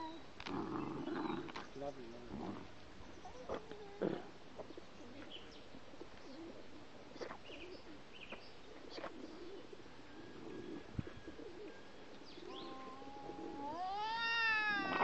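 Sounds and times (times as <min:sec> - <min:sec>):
dogs growling softly: 0:00.4 - 0:02.7, 0:03.3 - 0:05.4.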